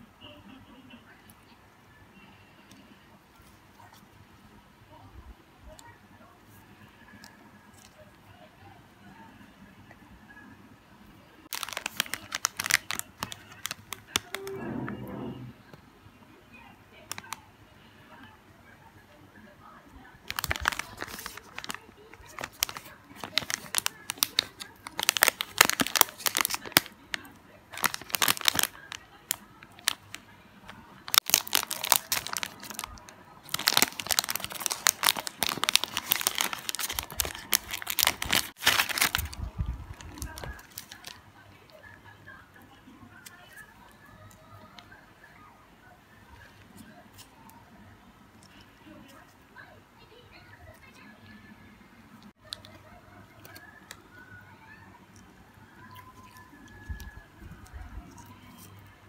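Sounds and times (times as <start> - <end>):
plastic wrapper crinkling: 7.1 - 8.0, 11.4 - 14.6, 17.0 - 17.4, 20.2 - 41.2, 52.4 - 54.8.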